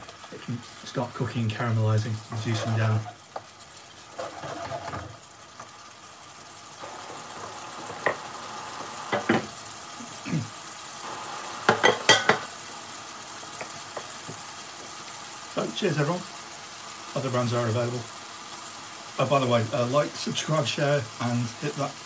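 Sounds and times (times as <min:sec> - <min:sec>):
sauce sizzling and bubbling: 0:00.0 - 0:22.0
spatula stirring: 0:02.3 - 0:05.1.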